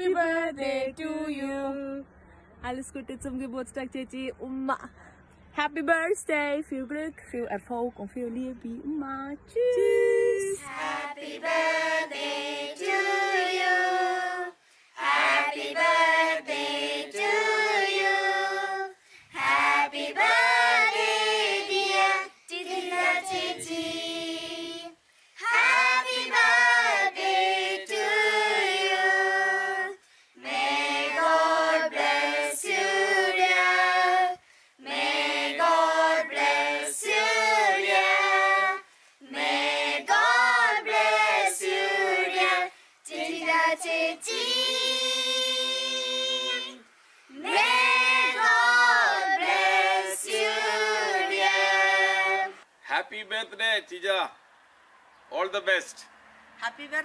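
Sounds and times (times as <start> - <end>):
group singing unaccompanied: 10.5 - 52.7.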